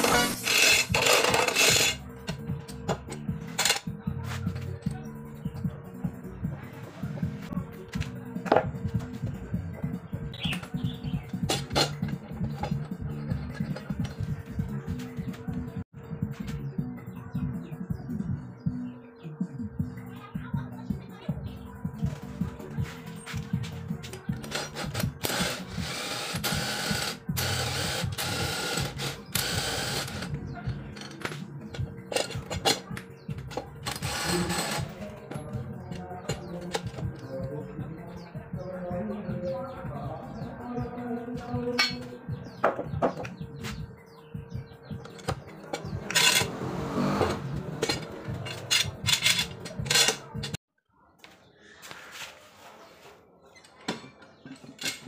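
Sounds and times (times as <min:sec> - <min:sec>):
cordless drill spinning screw: 0:00.0 - 0:02.0, 0:24.5 - 0:30.3
metal clamp clanking and scraping: 0:45.1 - 0:46.5, 0:47.8 - 0:50.6.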